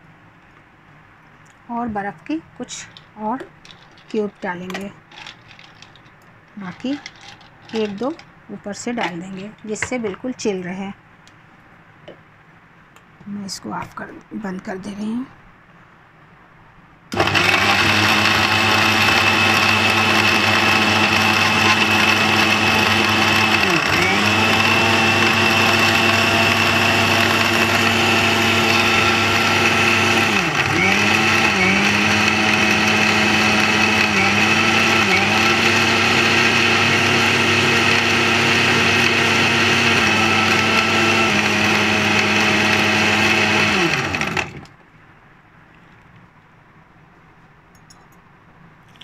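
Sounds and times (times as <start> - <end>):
mixer grinder motor blending: 6.7 - 8.2, 17.1 - 44.7.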